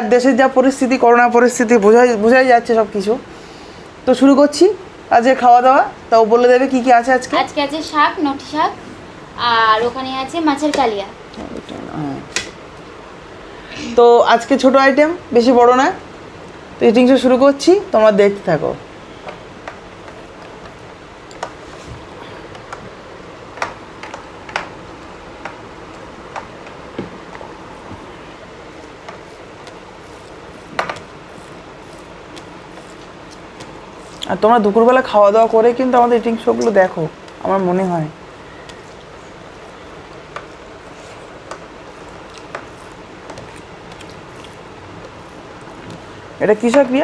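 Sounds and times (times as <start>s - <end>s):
steady low hiss: 0.0s - 47.0s
hands working rice on plastic plates: 23.5s - 47.0s
soft chewing and mouth clicks: 38.7s - 46.1s.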